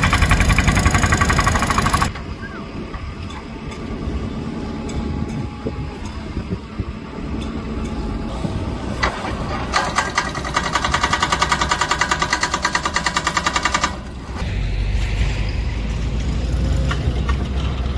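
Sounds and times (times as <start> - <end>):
hydraulic breaker hammering concrete: 0.0 - 2.2, 9.0 - 14.2
diesel engine running: 0.0 - 17.9.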